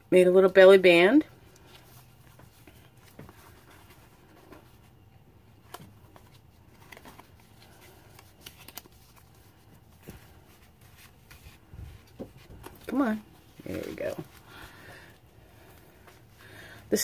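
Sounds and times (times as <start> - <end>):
paper and card rustling: 1.5 - 14.8.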